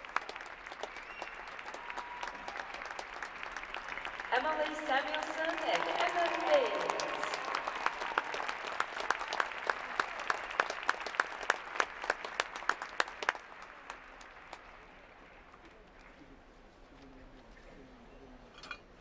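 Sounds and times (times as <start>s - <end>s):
rhythmic clapping in unison: 0.0s - 14.7s
crowd applauding: 0.0s - 16.3s.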